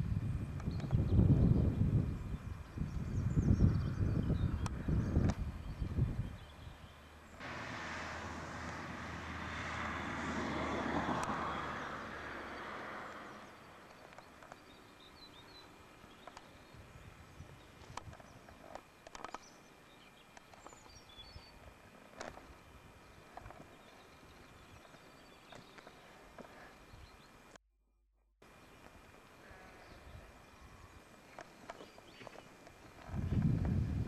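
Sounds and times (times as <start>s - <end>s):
vehicle passing by: 7.4s - 13.8s
small clicks: 16.2s - 16.6s, 17.9s - 19.5s, 20.3s - 21.0s.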